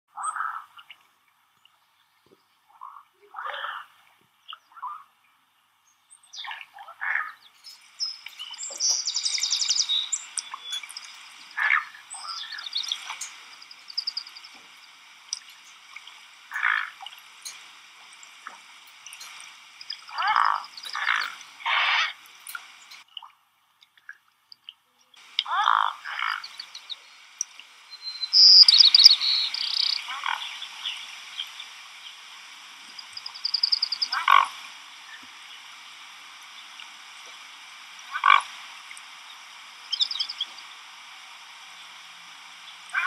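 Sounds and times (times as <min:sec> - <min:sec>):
thin high peeping: 0:07.6 - 0:16.8, 0:26.1 - 0:32.2, 0:32.8 - 0:34.5, 0:39.9 - 0:40.7
swans grunting: 0:20.0 - 0:22.2.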